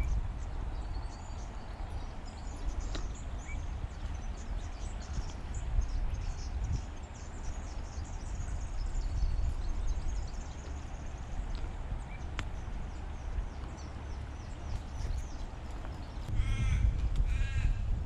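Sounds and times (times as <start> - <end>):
high chirping calls: 0.0 - 17.6
wind buffeting microphone: 0.0 - 18.0.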